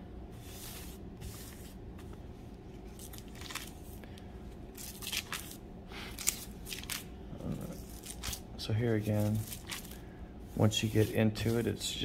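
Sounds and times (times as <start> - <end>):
thin paper pages rustling: 2.8 - 4.0, 4.7 - 7.1, 7.8 - 8.4, 9.0 - 10.0.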